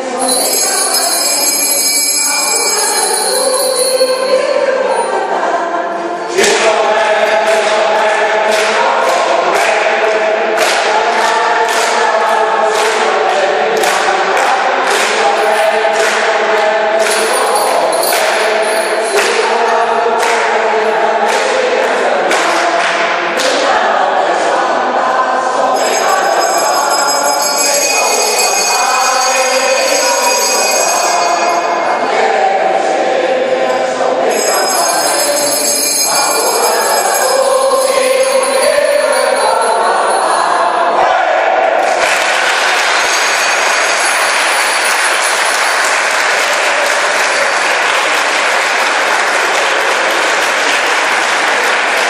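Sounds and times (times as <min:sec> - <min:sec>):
choir singing sustained chords: 0:04.2 - 0:27.3, 0:27.9 - 0:42.0.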